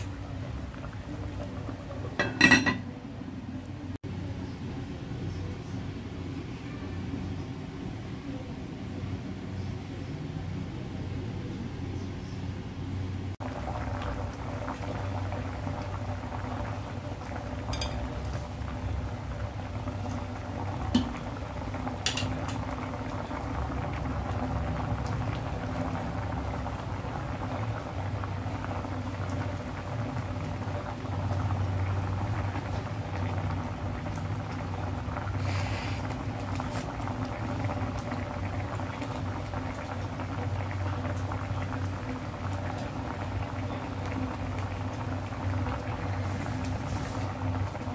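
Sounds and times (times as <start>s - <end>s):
soup bubbling in a pot: 0.0s - 4.4s, 13.3s - 47.9s.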